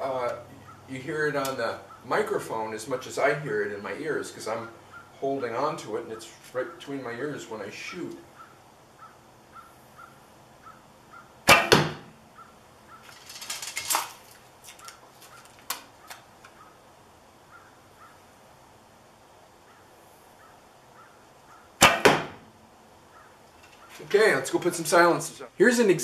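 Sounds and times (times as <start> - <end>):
bow string release twang: 11.5 - 12.1, 21.8 - 22.4
rustling: 12.9 - 16.8.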